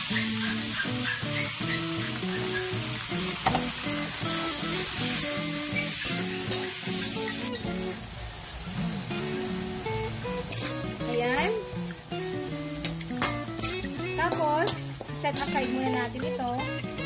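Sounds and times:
metal spatula scraping a wok: 0.0s - 3.0s, 5.1s - 7.7s, 10.4s - 11.7s, 12.8s - 16.0s
meat sizzling in hot oil: 0.0s - 17.0s.

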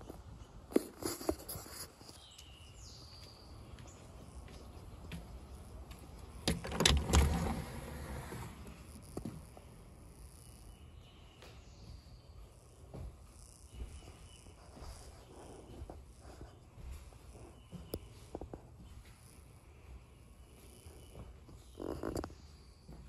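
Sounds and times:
door opening: 6.4s - 8.9s
insects chirring: 20.6s - 23.0s.

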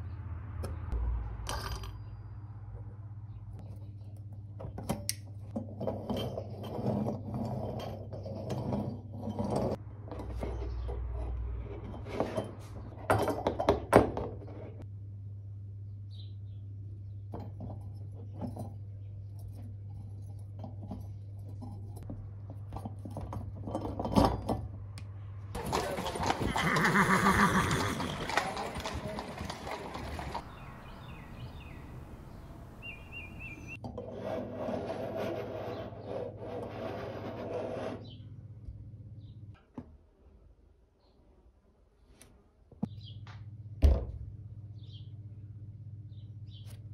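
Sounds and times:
horse neighing: 25.6s - 30.5s.

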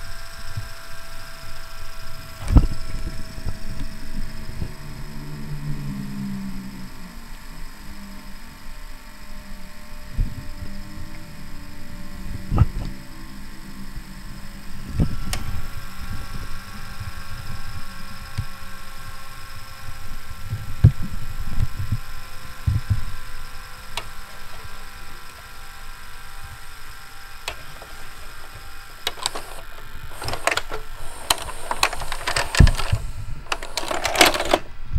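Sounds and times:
tape mechanism whirring: 0.0s - 34.9s
mechanical knocks and clicks: 29.0s - 34.7s.

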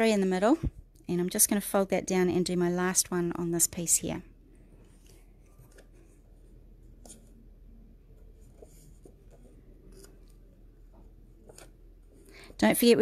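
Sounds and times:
paper rustling: 8.2s - 12.4s.

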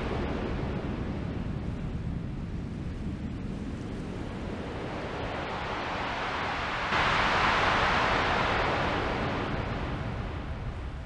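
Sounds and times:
low rumbling synthesizer noise: 6.9s - 11.0s.

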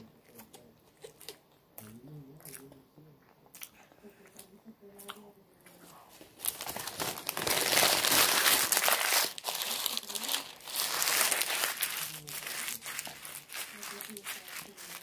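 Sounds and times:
food wrapper crinkling: 6.1s - 15.0s.

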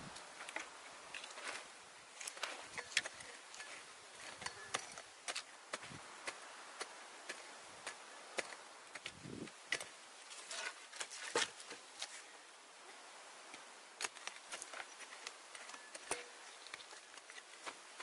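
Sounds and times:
faint steady hiss: 0.0s - 18.0s
digging tool chopping dry soil: 2.2s - 12.0s, 15.6s - 18.0s.

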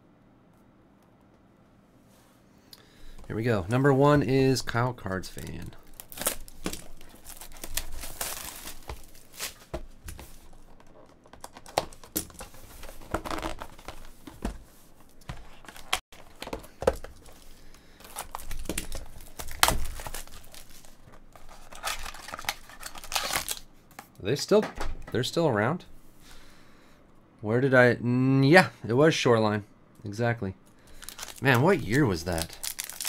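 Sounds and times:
plastic wrap tearing and crinkling: 5.4s - 12.5s, 13.1s - 14.1s, 15.6s - 23.7s, 30.9s - 33.0s.

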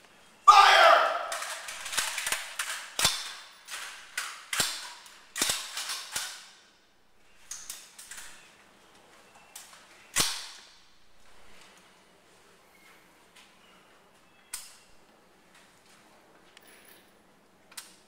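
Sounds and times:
rifle shots echoing indoors: 0.5s - 6.9s, 10.1s - 11.1s.

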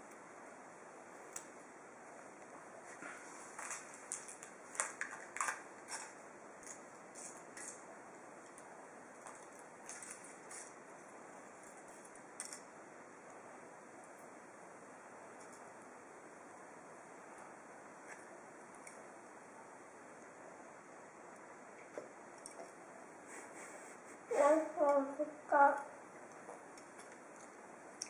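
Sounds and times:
faint steady hiss: 0.0s - 28.0s
foil wrapper crinkling: 3.5s - 7.8s.

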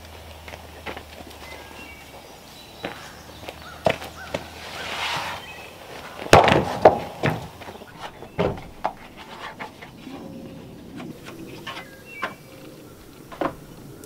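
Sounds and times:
wooden boards scraping: 3.7s - 13.6s
wooden boards knocking: 6.2s - 10.2s.

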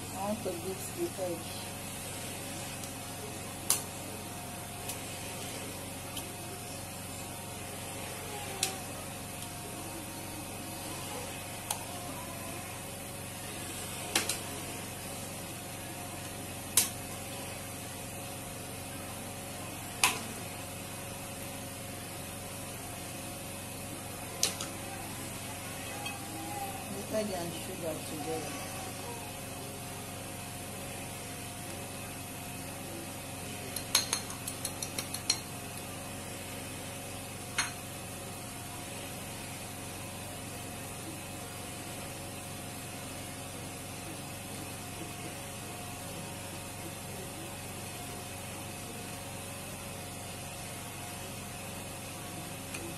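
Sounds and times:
steady background hum: 0.0s - 41.2s
eggs cracked on glass bowl: 33.8s - 35.4s
spoon clinking on ceramic plate: 33.8s - 35.5s.

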